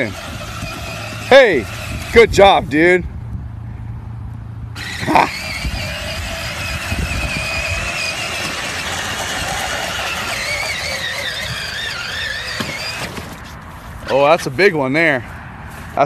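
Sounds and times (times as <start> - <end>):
toy truck motors whining: 0.0 - 2.4, 4.8 - 13.6.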